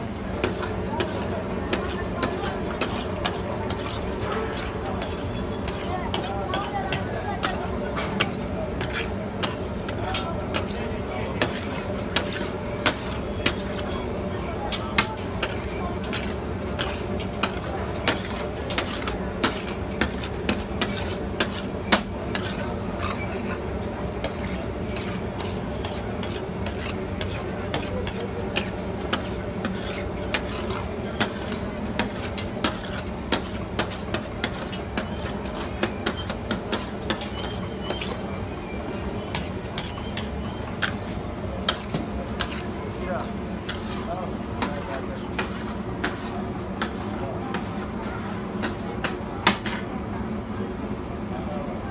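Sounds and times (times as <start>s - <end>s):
metal scraper clacking on griddle: 0.4s - 13.9s, 14.7s - 38.2s, 41.6s - 42.6s.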